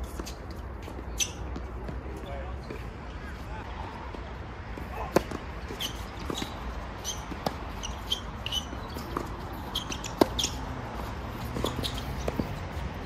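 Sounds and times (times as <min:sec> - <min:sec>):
shoes squeaking: 0:00.0 - 0:13.0
tennis ball hit by racket: 0:04.9 - 0:10.7.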